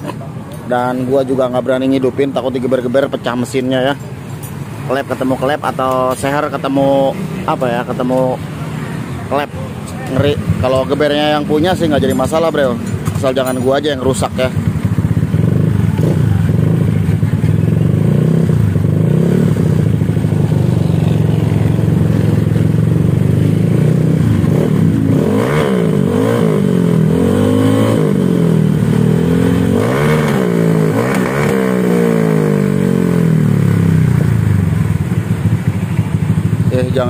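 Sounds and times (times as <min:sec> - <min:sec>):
scooter engine revving: 0:10.0 - 0:37.0.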